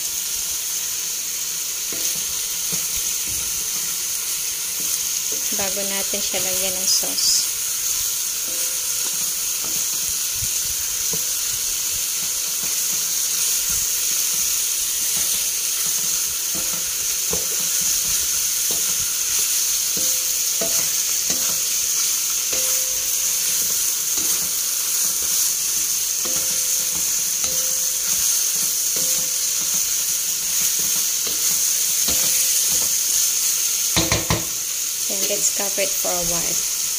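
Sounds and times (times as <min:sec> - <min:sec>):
meat and onions sizzling in oil: 0:00.0 - 0:36.9
wooden spatula scraping wok: 0:01.9 - 0:34.6.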